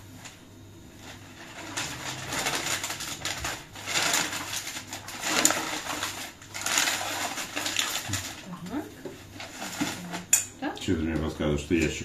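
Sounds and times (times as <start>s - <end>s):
paper rustling and crinkling: 1.0s - 10.3s.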